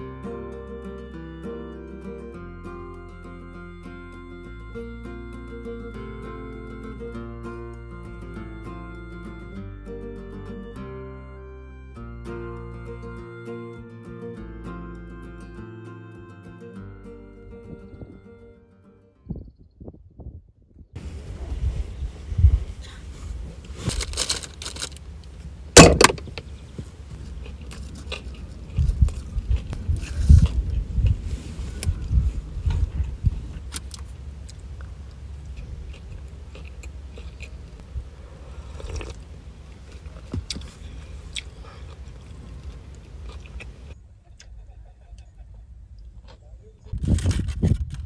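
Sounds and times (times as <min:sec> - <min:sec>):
food packaging rustling: 0:23.5 - 0:25.2.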